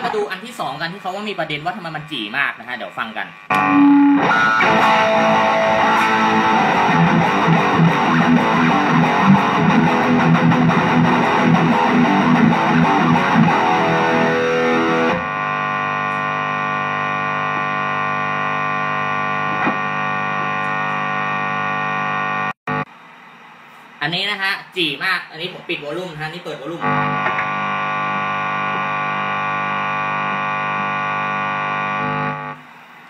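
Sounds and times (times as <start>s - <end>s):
distorted electric guitar: 0.0s - 0.6s, 3.0s - 22.9s, 26.8s - 32.7s
pedal buzzing hum: 0.0s - 23.6s, 25.8s - 33.0s.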